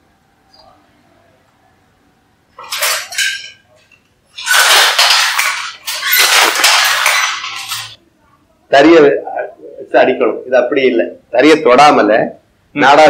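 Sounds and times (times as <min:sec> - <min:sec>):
wooden handloom clattering: 0:02.6 - 0:08.0.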